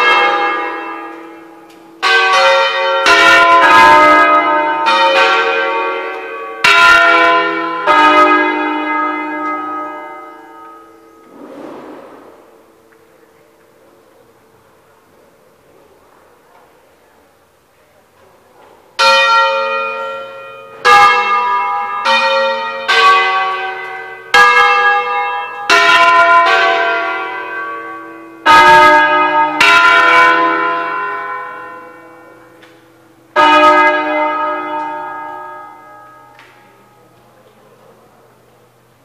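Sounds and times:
church bells ringing: 0:00.0 - 0:11.4, 0:12.3 - 0:14.4, 0:19.0 - 0:37.2.

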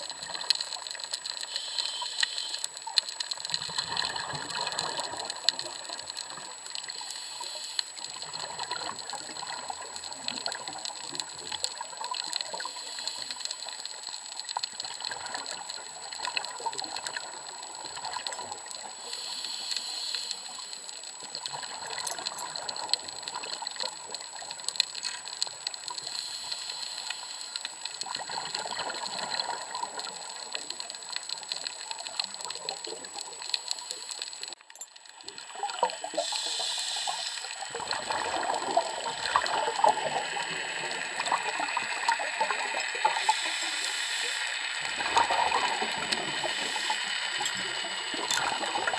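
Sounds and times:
underwater crackle of clicks: 0:00.0 - 0:48.9
rushing water: 0:21.1 - 0:48.9.

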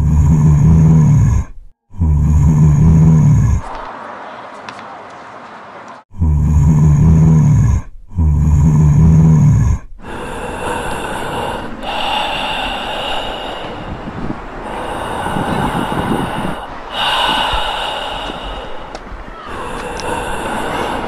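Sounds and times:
low groans: 0:00.0 - 0:03.9, 0:06.1 - 0:21.0
raspy breathy snarl: 0:06.2 - 0:21.0.

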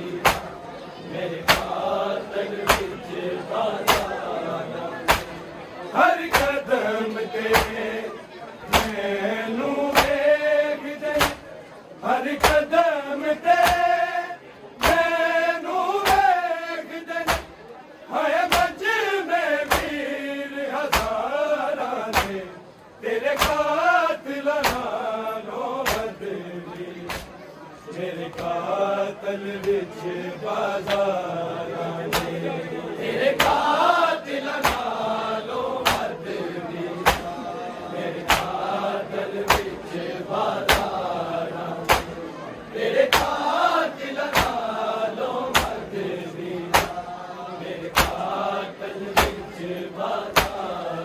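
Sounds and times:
group chanting: 0:00.0 - 0:51.0
hands slapping chests: 0:00.2 - 0:00.5, 0:01.4 - 0:01.8, 0:02.6 - 0:03.0, 0:03.8 - 0:04.2, 0:05.0 - 0:05.4, 0:06.3 - 0:06.6, 0:07.5 - 0:07.8, 0:08.7 - 0:09.0, 0:09.9 - 0:10.2, 0:11.1 - 0:11.4, 0:12.4 - 0:12.7, 0:13.6 - 0:13.9, 0:14.8 - 0:15.1, 0:16.0 - 0:16.3, 0:17.2 - 0:17.6, 0:18.5 - 0:18.8, 0:19.6 - 0:20.0, 0:20.9 - 0:21.2, 0:22.1 - 0:22.4, 0:23.3 - 0:23.7, 0:24.6 - 0:24.9, 0:25.8 - 0:26.1, 0:27.1 - 0:27.4, 0:32.1 - 0:32.4, 0:33.4 - 0:33.7, 0:34.6 - 0:35.0, 0:35.8 - 0:36.2, 0:37.0 - 0:37.4, 0:38.2 - 0:38.6, 0:39.4 - 0:39.8, 0:40.6 - 0:41.0, 0:41.8 - 0:42.2, 0:43.1 - 0:43.4, 0:44.2 - 0:44.7, 0:45.5 - 0:45.9, 0:46.7 - 0:47.0, 0:47.9 - 0:48.3, 0:49.1 - 0:49.4, 0:50.3 - 0:50.6.

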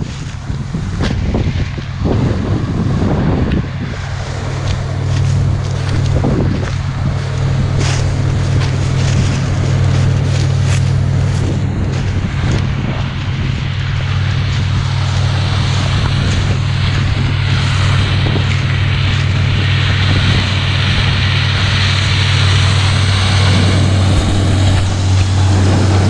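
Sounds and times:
combine harvester droning: 0:00.0 - 0:26.0
wind rumbling on microphone: 0:00.0 - 0:26.0.

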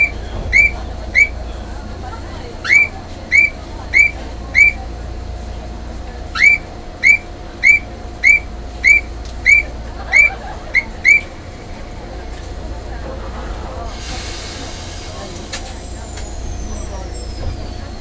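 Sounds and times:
high whistle-like chirp: 0:00.0 - 0:01.4, 0:02.7 - 0:04.8, 0:06.4 - 0:11.3, 0:15.7 - 0:18.0.

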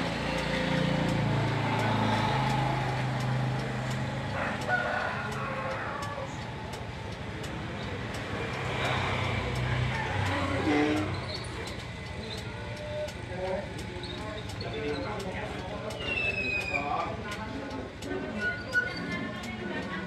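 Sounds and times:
rooster crowing: 0:04.4 - 0:06.4, 0:09.8 - 0:10.7.

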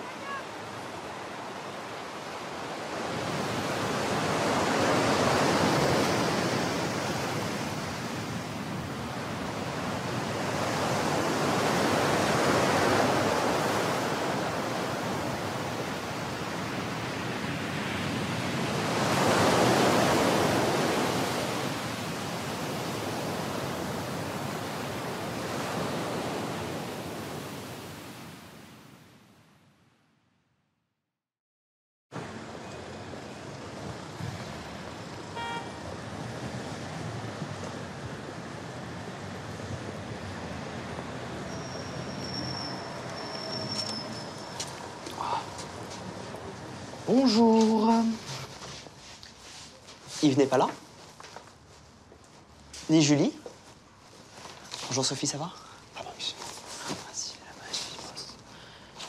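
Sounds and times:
surf breaking on a beach: 0:00.0 - 0:28.9.

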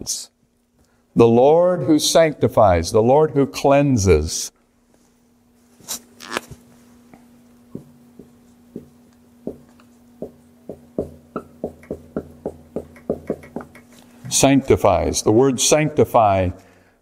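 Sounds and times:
faint steady hum: 0:00.0 - 0:17.0
marker tapping on whiteboard: 0:07.7 - 0:14.0.

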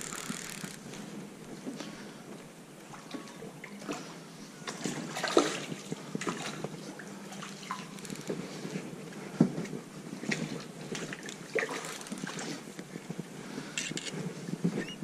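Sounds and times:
fish splashing in water: 0:11.0 - 0:12.6.

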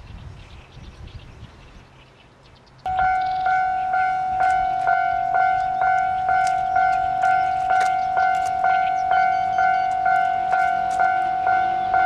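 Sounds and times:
level crossing warning bell ringing: 0:02.9 - 0:12.0.

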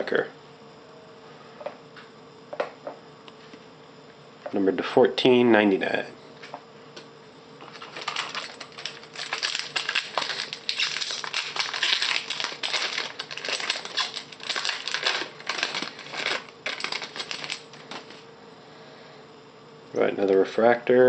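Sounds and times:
foil wrapper crinkling and tearing: 0:07.7 - 0:18.2.

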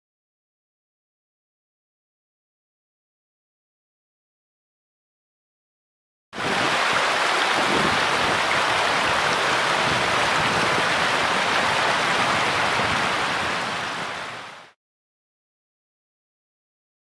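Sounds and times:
water rushing: 0:06.4 - 0:14.8.

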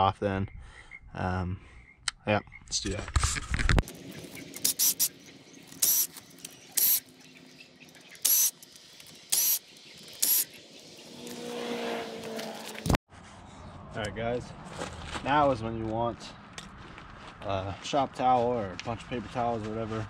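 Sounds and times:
impact wrench bursts: 0:04.5 - 0:07.1, 0:08.2 - 0:10.6.

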